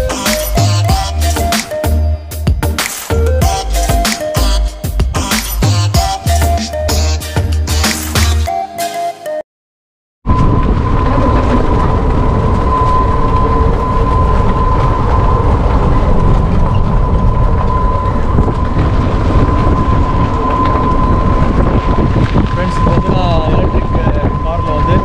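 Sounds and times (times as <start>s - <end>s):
tyre and wind noise: 10.2s - 25.0s.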